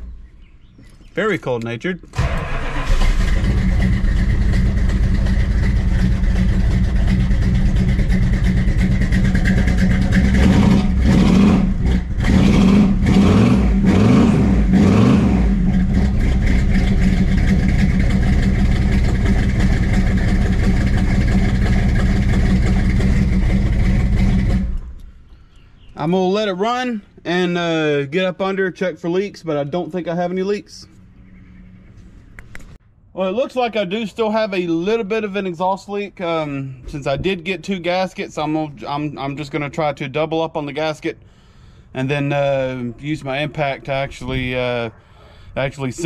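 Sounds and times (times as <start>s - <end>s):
car engine starting and revving: 2.1s - 25.0s.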